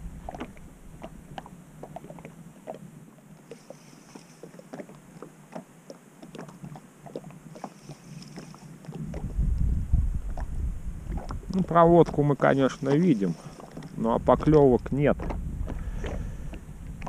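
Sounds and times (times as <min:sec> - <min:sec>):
small waves lapping against boat: 0:00.0 - 0:17.0.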